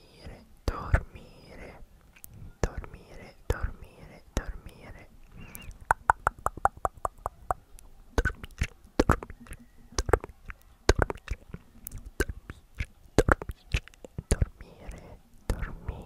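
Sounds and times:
lip smacks: 5.3s - 15.8s
wet tongue clicks: 5.4s - 16.0s.

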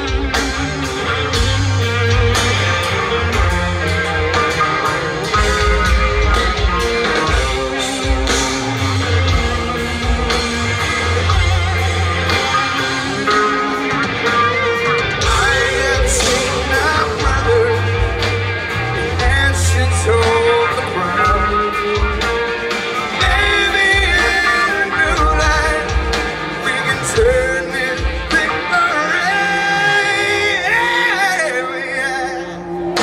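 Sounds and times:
drum kit: 0.0s - 31.4s
bass guitar: 0.0s - 33.0s
electric guitars: 0.0s - 33.0s
person singing: 11.8s - 33.0s.

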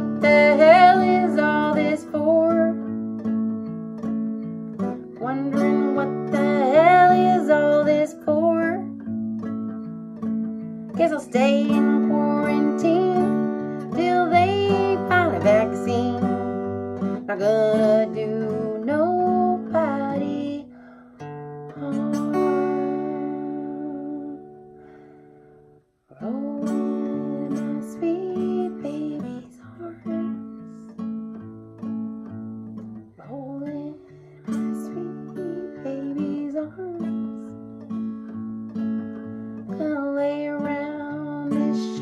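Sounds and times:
woman singing: 0.0s - 3.1s, 4.8s - 9.1s, 10.9s - 24.7s, 26.1s - 31.0s, 33.0s - 37.6s, 39.6s - 42.0s
acoustic guitar strumming: 0.0s - 42.0s.

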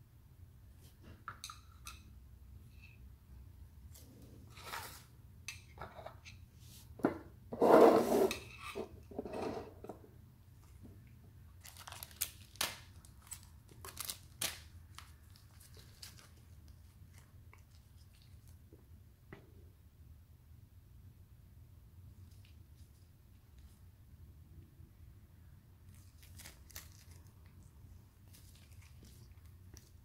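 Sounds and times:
packaging rustling and crinkling: 11.6s - 16.6s.

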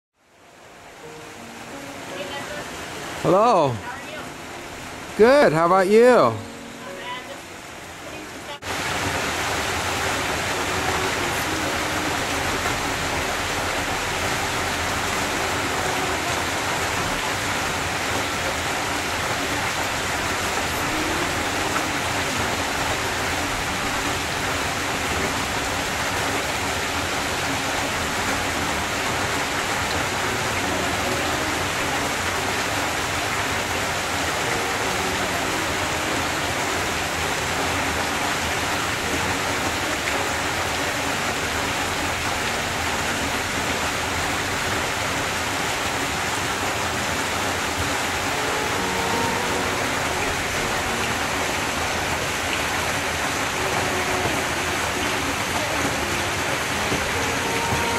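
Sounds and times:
waterfall splashing into pool: 1.0s - 7.2s, 8.1s - 57.9s.

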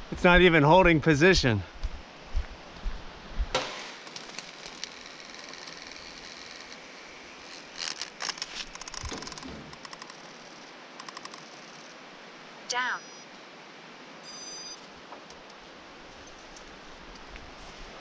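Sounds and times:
leaves and fronds rustling: 1.7s - 12.4s, 14.8s - 18.0s.

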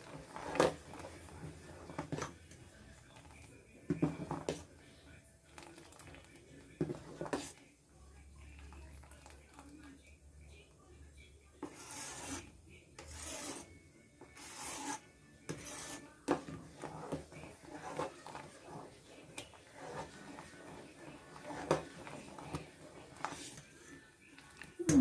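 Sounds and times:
ladle scraping steel pot: 0.0s - 2.3s, 6.8s - 7.6s, 11.6s - 13.7s, 14.3s - 25.0s.

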